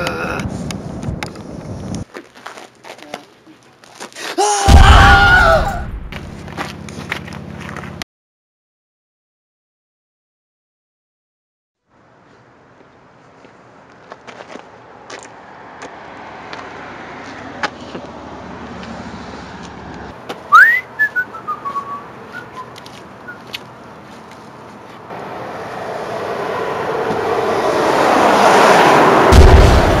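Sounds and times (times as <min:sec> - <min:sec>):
loud upward whistle: 0:20.5 - 0:22.7
rushing noise: 0:25.1 - 0:30.0.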